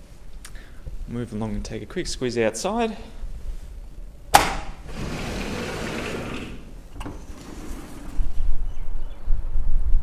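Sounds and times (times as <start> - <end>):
sliding door click: 4.4 - 8.5
door running along track: 4.8 - 8.5
wind buffeting microphone: 7.4 - 10.0.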